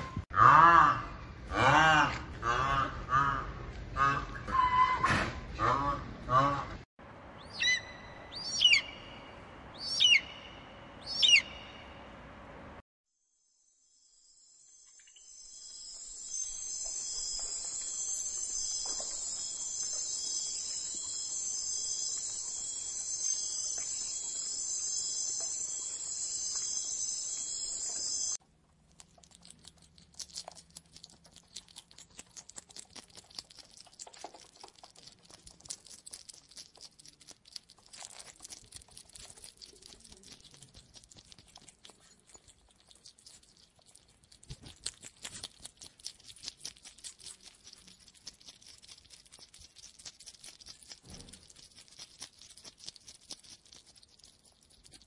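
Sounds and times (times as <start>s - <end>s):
crickets chirring: 14.0s - 28.4s
faint crackling and ticking: 15.7s - 55.0s.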